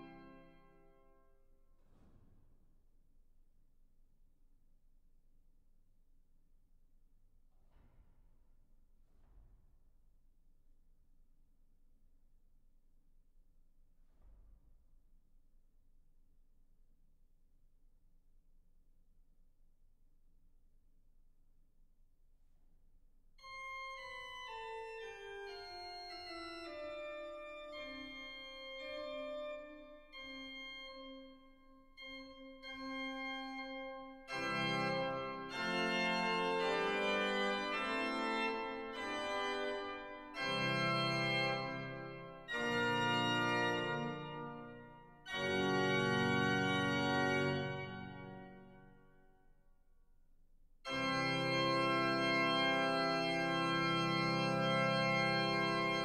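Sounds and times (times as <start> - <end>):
pipe organ playing: 23.4 - 31.4, 32.0 - 48.7, 50.9 - 56.0.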